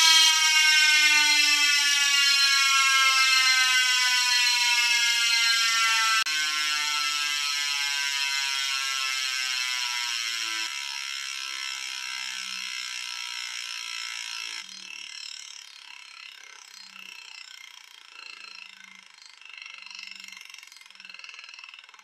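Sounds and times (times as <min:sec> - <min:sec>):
bicycle hub ratchet buzzing: 0:00.0 - 0:22.0.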